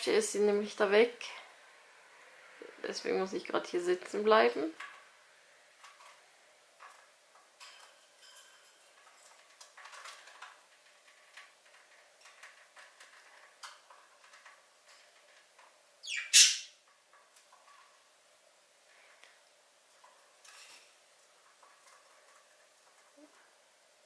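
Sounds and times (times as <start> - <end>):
budgerigars chirping: 16.0 - 16.8.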